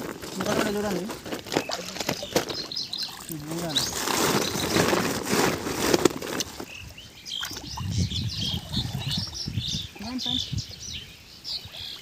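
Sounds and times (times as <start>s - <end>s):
water splashing and sloshing: 0.0s - 10.2s
bird chirps: 1.5s - 5.0s, 6.6s - 12.0s.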